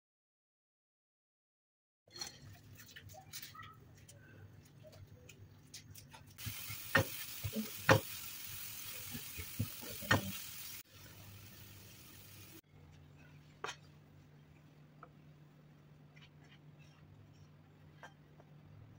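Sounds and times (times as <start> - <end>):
food sizzling in a frying pan: 6.4 - 12.6
spatula knocking and scraping pan: 6.5 - 8.2.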